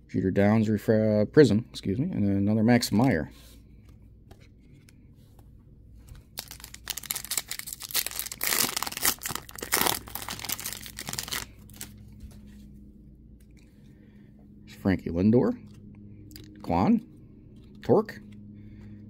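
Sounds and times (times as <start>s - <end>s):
foil wrapper tearing and crinkling: 6.3s - 11.9s.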